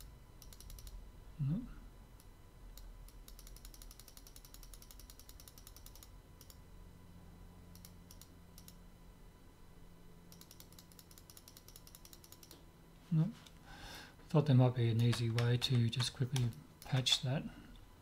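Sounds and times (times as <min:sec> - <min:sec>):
low steady hum: 0:00.0 - 0:18.0
mouse and keyboard clicking: 0:00.4 - 0:01.0, 0:10.3 - 0:12.6, 0:15.0 - 0:17.3.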